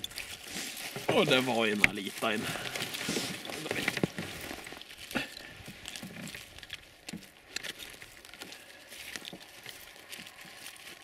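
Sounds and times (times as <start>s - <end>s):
jacket fabric rustling: 0.0s - 6.3s.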